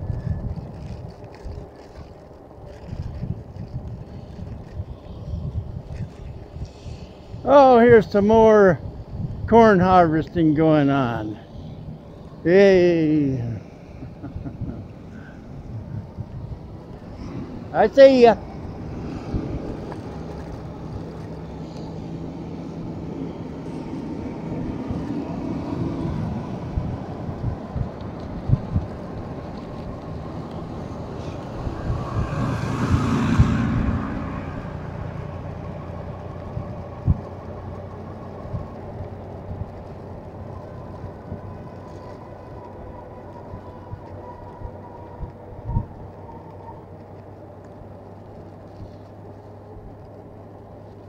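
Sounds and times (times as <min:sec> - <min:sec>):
wind on microphone: 0:00.0 - 0:47.3
vehicle passing: 0:00.0 - 0:50.7
bike road noise: 0:00.0 - 0:51.0.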